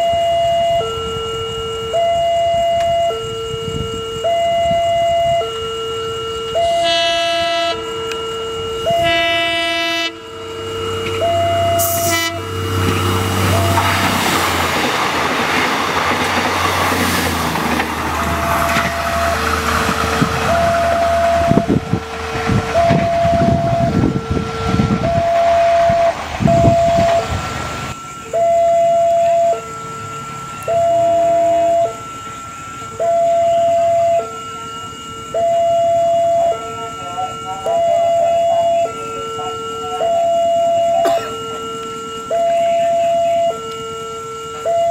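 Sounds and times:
train horn blasts: 0.0 - 14.3, 18.2 - 27.4
level crossing alarm: 0.0 - 44.9
train engine rumble: 0.0 - 44.9
train wheels clacking on rails: 12.8 - 24.0.

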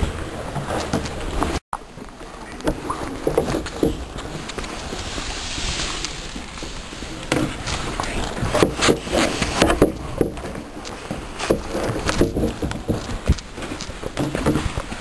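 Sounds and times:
rushing hiss: 4.5 - 9.7.

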